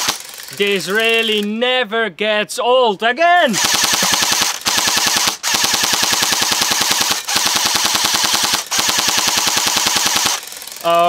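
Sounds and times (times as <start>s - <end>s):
airsoft rifle firing full-auto: 0.0s - 0.3s, 3.6s - 10.7s.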